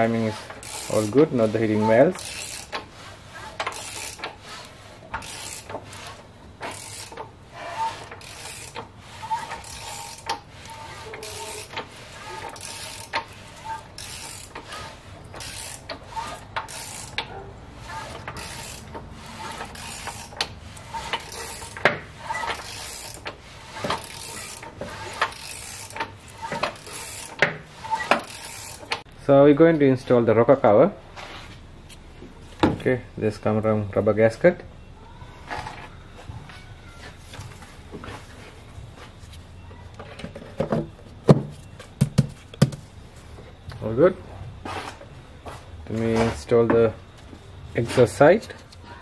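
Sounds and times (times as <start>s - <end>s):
ratchet wrench clicking: 0.5s - 1.3s, 2.1s - 2.9s, 3.5s - 17.3s, 17.9s - 29.0s.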